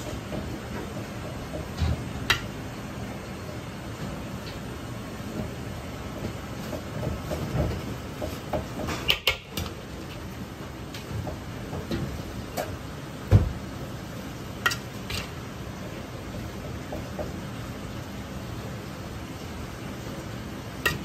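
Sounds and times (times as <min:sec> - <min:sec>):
steady background noise: 0:00.0 - 0:21.0.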